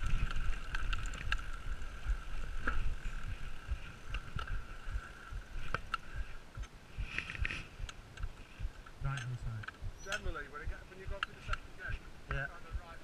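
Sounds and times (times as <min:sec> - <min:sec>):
bike clicks and rattles: 0:00.0 - 0:10.4
high buzz of coasting freehub: 0:00.0 - 0:13.0.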